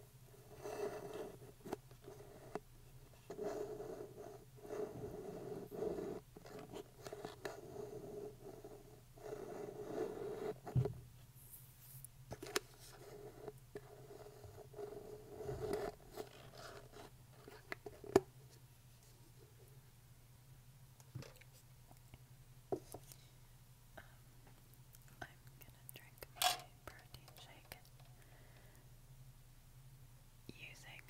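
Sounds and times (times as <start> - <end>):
fingernails scratching paper cup: 3.3 - 10.6, 12.9 - 17.6.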